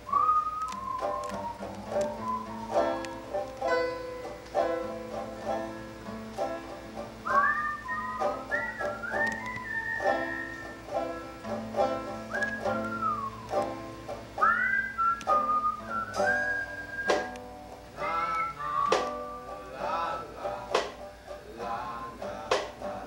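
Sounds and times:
whistled melody: 0:00.0 - 0:03.4, 0:05.1 - 0:06.0, 0:07.2 - 0:11.3, 0:12.0 - 0:20.3
banjo picking: 0:00.0 - 0:23.0.

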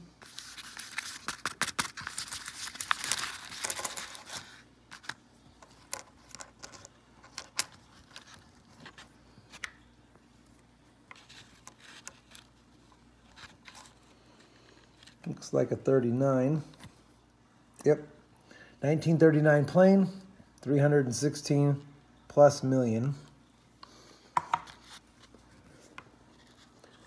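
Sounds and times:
paper wrapper crinkling: 0:00.2 - 0:05.1
coins clinking: 0:02.9 - 0:08.4
coins set on wooden table: 0:02.9 - 0:08.4.

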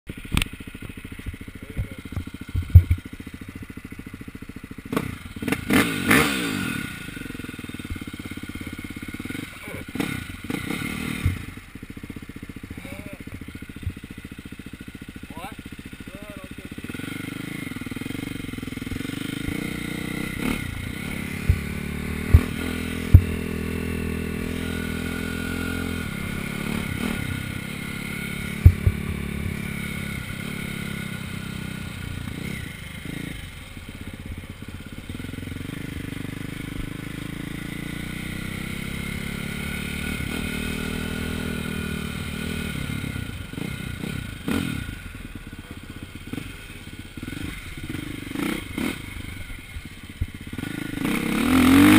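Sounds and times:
dirt bike engine revving: 0:00.2 - 0:51.9
sharp knocks: 0:21.4 - 0:23.4.

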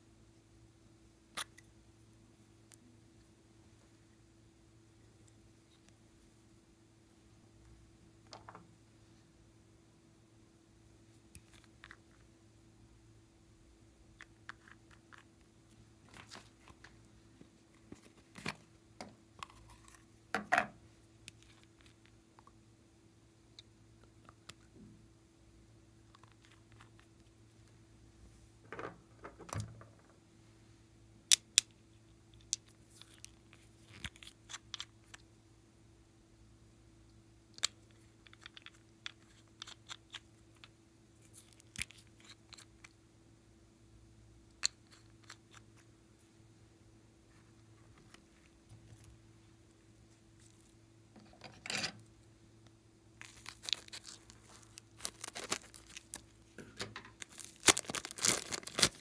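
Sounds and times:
slime being squeezed: 0:57.2 - 0:59.0.

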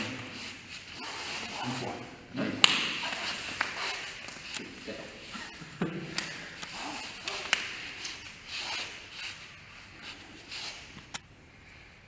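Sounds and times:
arms slapping and tapping: 0:02.6 - 0:04.8, 0:06.0 - 0:08.3.

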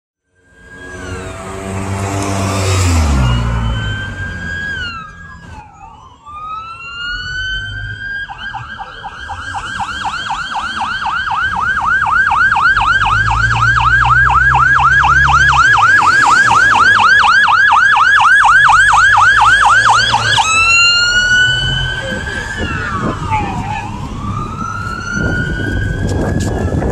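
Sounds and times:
siren wailing and yelping: 0:00.4 - 0:26.9.

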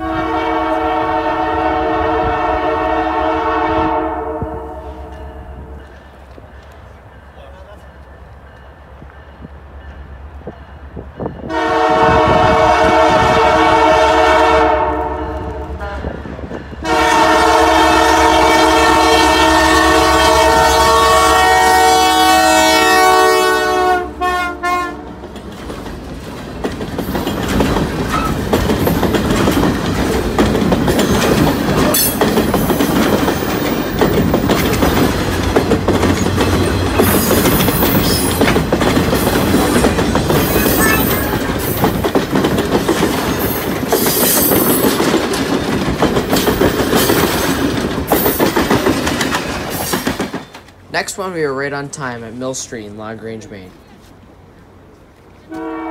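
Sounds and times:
locomotive air horn blasts: 0:00.0 - 0:05.8, 0:11.4 - 0:16.2, 0:16.8 - 0:25.1, 0:55.5 - 0:55.9
train rumbling past: 0:00.0 - 0:55.9
wheels clattering over rail joints: 0:25.1 - 0:51.0.

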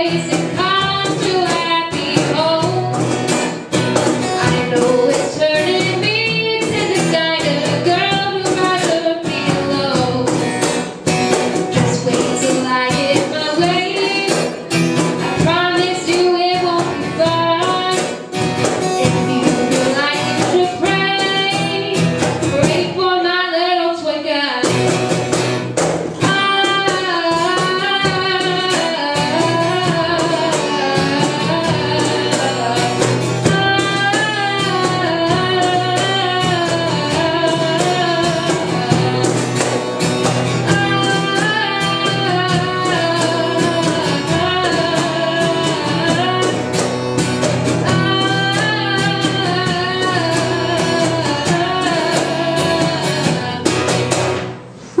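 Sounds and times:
girl singing into a microphone: 0:00.0 - 0:55.0
strummed acoustic guitar: 0:00.0 - 0:55.0.

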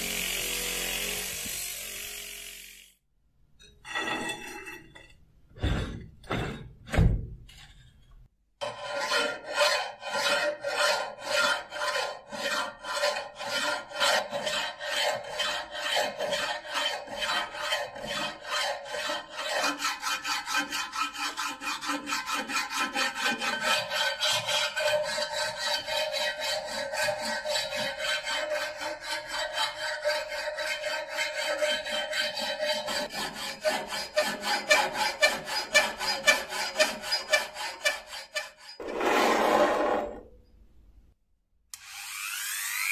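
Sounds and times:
steel file scraping knife blade: 0:08.6 - 0:39.4.

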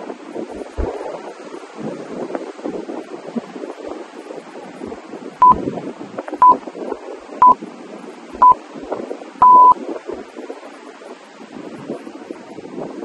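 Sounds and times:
surf: 0:00.0 - 0:13.0
wind noise on microphone: 0:00.0 - 0:13.0
electronic timer beeps: 0:09.4 - 0:09.8.

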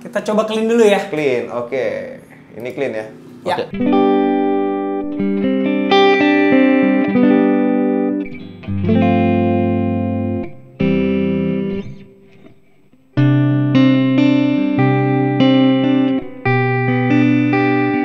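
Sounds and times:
clean electric guitar chords: 0:03.6 - 0:18.0.

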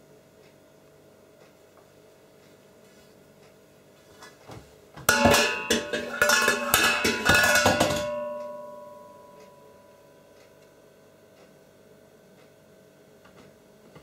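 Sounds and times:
pot lid clanging against pot: 0:05.1 - 0:09.3.

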